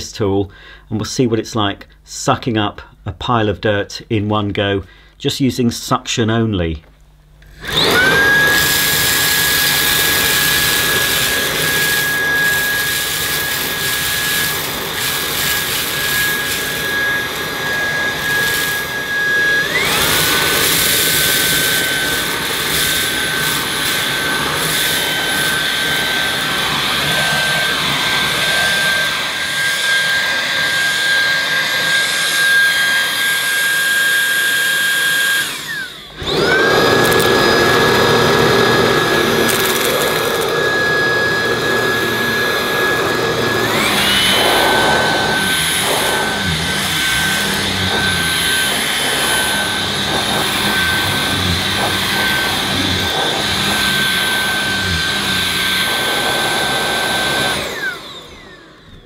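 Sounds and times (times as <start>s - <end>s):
vacuum motor whining: 7.4s - 59.0s
debris crackling through nozzle: 39.4s - 40.6s.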